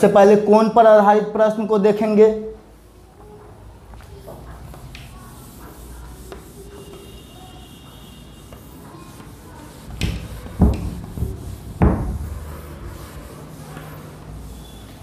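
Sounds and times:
cloth rubbing whiteboard: 4.1 - 15.0
dull thumps: 9.9 - 12.5.

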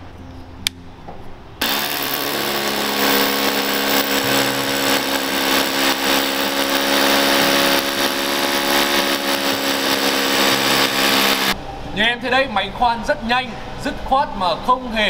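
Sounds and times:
rotary hammer drilling into concrete: 1.6 - 11.6.

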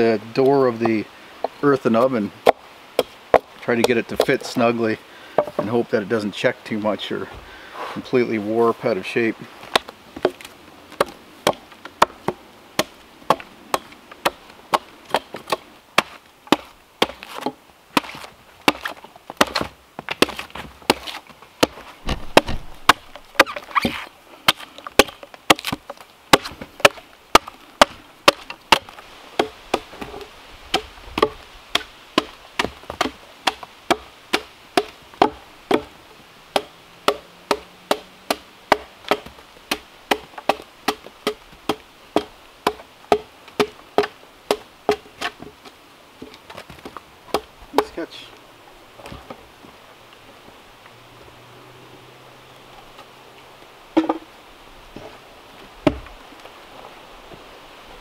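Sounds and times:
hand tool chopping wood: 1.9 - 4.5, 9.7 - 45.5, 46.5 - 48.0.

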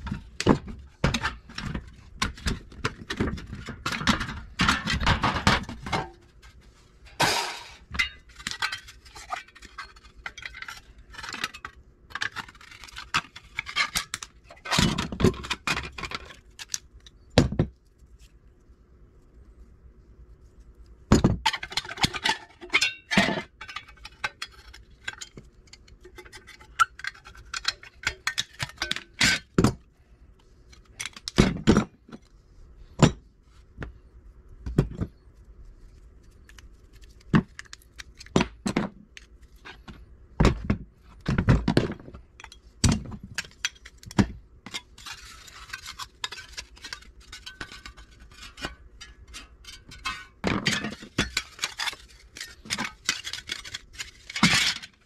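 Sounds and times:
sharp impacts: 7.2 - 7.8.

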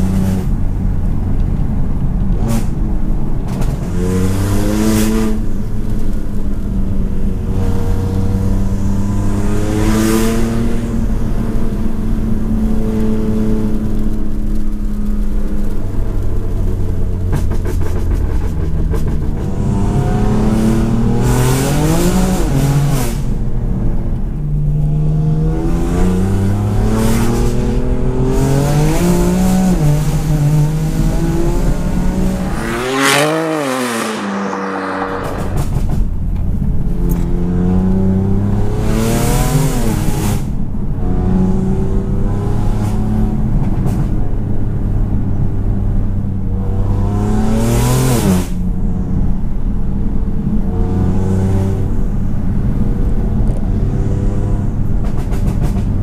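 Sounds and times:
car engine revving through gears: 17.6 - 23.3, 24.9 - 36.1
sharp rushes of exhaust noise: 31.6 - 36.2.

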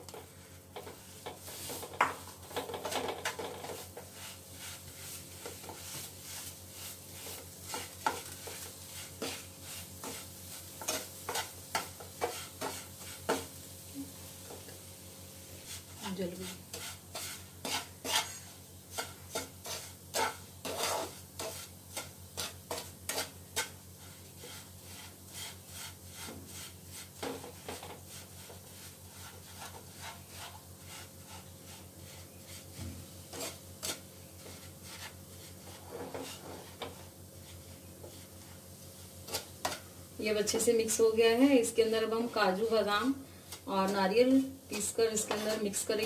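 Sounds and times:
wooden spatula scraping a pan: 0.0 - 14.8, 15.6 - 46.0.

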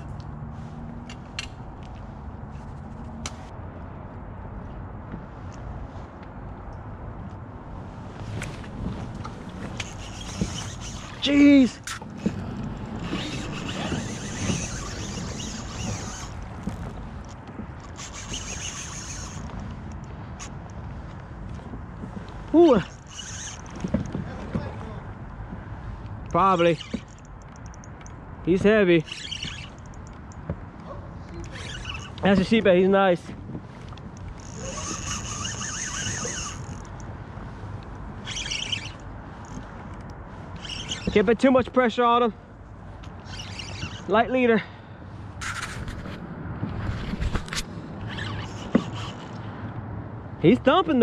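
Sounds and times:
low wind: 0.0 - 51.0
water noise: 7.9 - 25.0, 33.6 - 41.3
fishing reel whirring: 9.6 - 16.9, 17.8 - 20.6, 22.6 - 23.9, 26.4 - 27.9, 29.0 - 30.3, 31.3 - 32.2, 34.2 - 37.1, 38.2 - 39.7, 40.5 - 41.2, 43.2 - 44.1, 47.2 - 49.5
small reel clicks: 9.7 - 21.2, 22.7 - 24.2, 26.2 - 30.5, 31.3 - 32.4, 33.8 - 37.1, 38.2 - 41.3, 43.0 - 44.1, 47.2 - 49.5.

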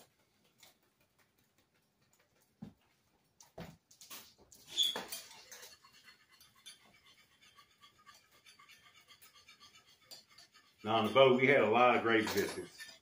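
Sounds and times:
utensil clatter: 4.1 - 13.0
utensil stirring in a pan: 4.4 - 13.0.

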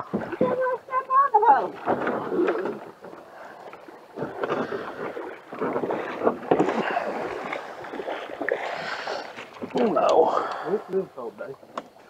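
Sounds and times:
water moving: 0.0 - 12.0
knocks and scrapes on canoe hull: 4.1 - 10.0.

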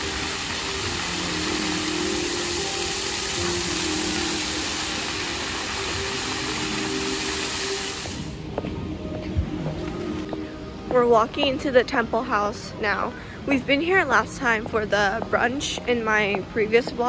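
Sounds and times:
fountain water splashing: 0.0 - 8.4.

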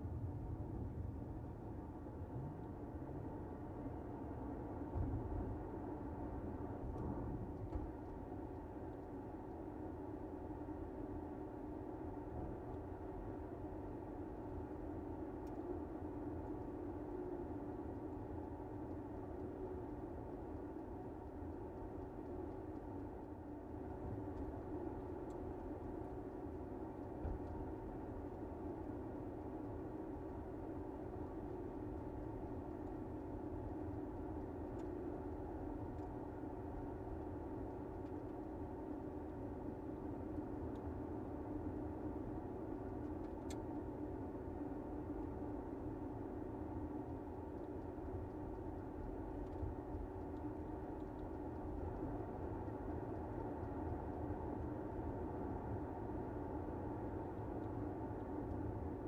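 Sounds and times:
faint ticks: 15.3 - 54.9.

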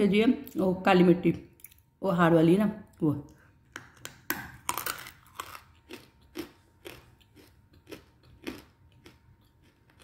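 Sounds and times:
crunchy chewing: 4.0 - 10.0.

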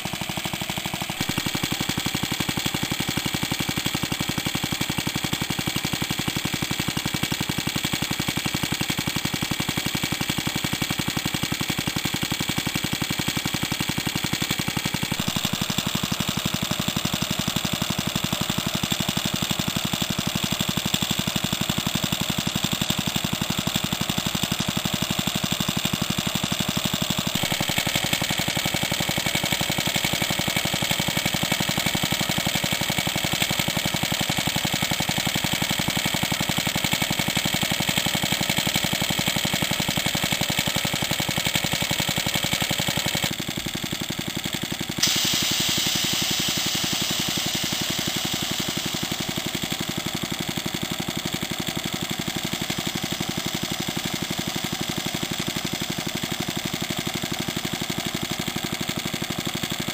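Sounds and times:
air compressor pumping: 0.0 - 59.9
stationary engine running: 0.0 - 59.9
sharp click: 45.0 - 49.9
bright hiss: 45.0 - 50.0.

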